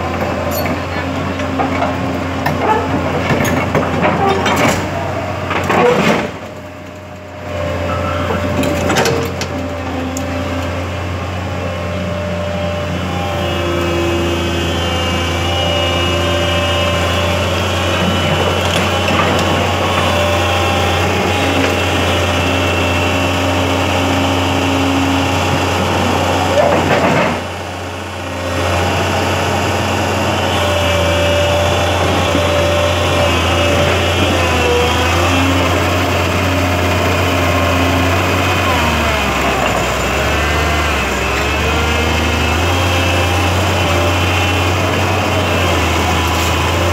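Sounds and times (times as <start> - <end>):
excavator diesel engine running: 0.0 - 46.9.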